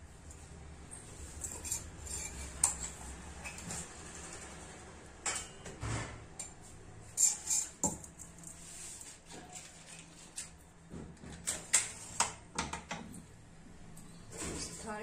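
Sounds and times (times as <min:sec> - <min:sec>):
metal kitchen utensils clinking: 0:05.2 - 0:05.7, 0:06.4 - 0:08.4.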